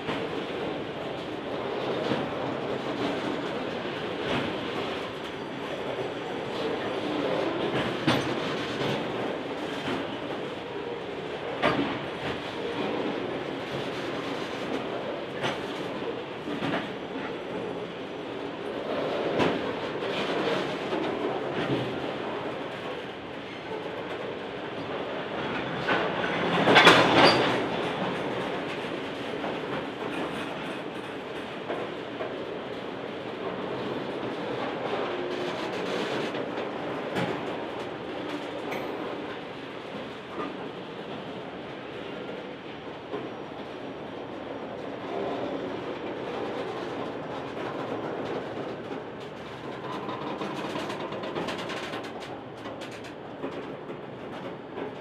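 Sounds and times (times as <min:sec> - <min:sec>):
train wheels clattering over rail joints: 0:06.9 - 0:10.2, 0:25.4 - 0:32.4, 0:46.2 - 0:55.0.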